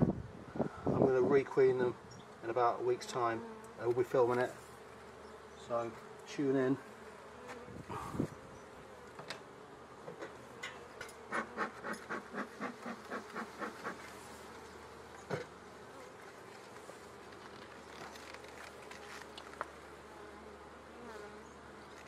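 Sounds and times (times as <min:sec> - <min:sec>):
bees buzzing: 0:01.6 - 0:22.0
bellows puffing: 0:07.8 - 0:08.5, 0:11.3 - 0:14.3.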